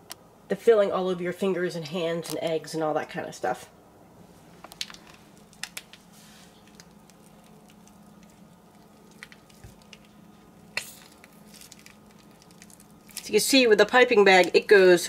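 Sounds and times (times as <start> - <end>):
low steady hum: 0.0 - 15.0
plastic bag squishing and crinkling: 4.6 - 15.0.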